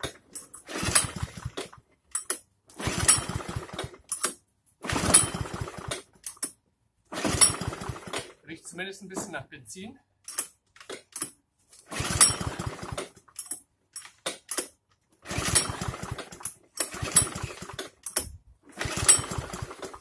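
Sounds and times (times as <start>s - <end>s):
engine turning over: 0.0s - 1.8s, 2.8s - 4.2s, 4.8s - 6.2s, 7.1s - 8.4s, 11.9s - 13.3s, 15.2s - 20.0s
recoil cord pull: 0.0s - 8.3s, 10.3s - 20.0s.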